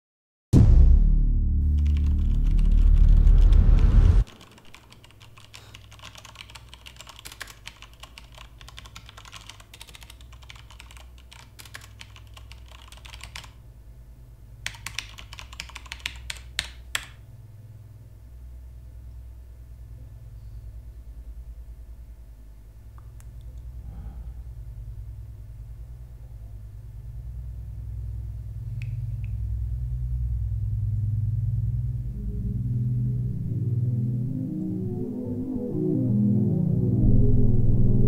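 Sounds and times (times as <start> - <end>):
loud deep rumble: 0.6 - 4.3, 17.4 - 38.0
low steady hum: 0.6 - 38.0
fast typing on mechanical keyboard: 1.8 - 3.6, 4.2 - 13.6, 14.6 - 17.2.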